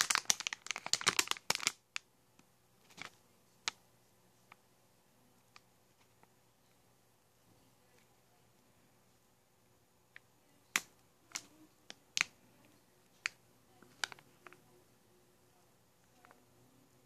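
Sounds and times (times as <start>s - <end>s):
foil packet crackling: 0.0s - 1.8s.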